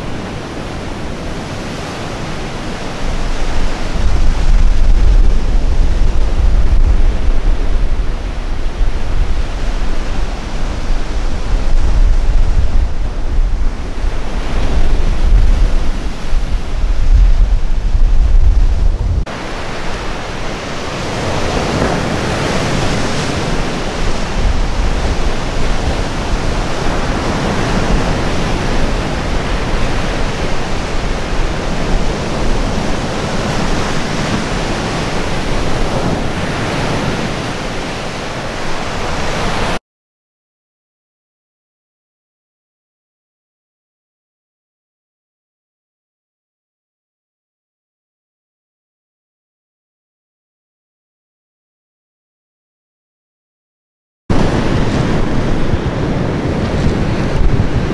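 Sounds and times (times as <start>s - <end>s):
waves breaking on shore: 0.0s - 39.8s, 54.3s - 57.9s
wind buffeting microphone: 0.0s - 39.8s, 54.3s - 57.9s.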